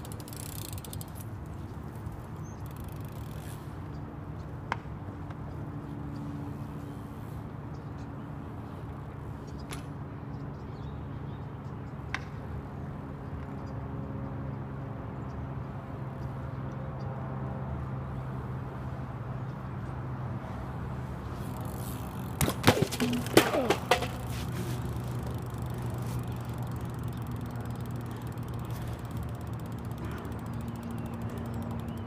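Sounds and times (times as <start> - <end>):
bike crashing on concrete: 21.7 - 25.3.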